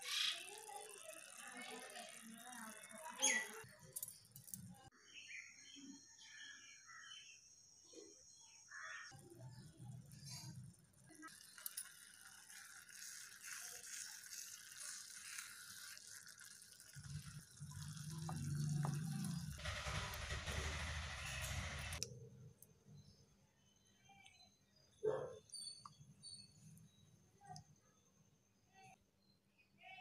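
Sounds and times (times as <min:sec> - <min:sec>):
chirps: 0:03.0 - 0:11.6, 0:22.7 - 0:30.0.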